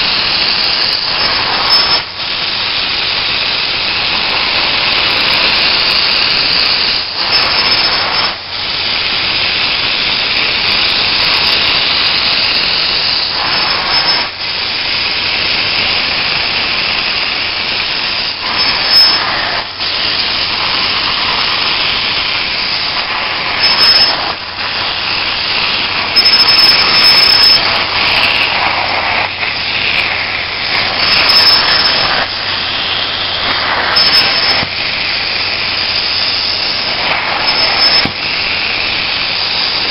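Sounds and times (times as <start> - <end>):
steam cleaner hiss and suction: 0.0 - 39.9.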